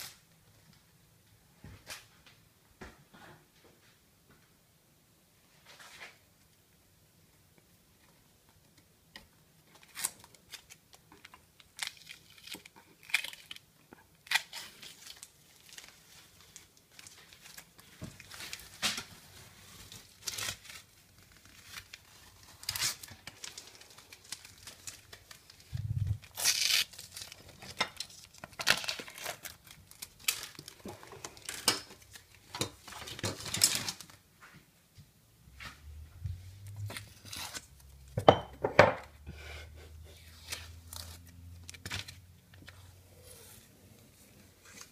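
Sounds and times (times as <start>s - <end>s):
short tearing and crinkling: 9.7s - 34.2s, 36.6s - 38.0s, 40.3s - 43.6s.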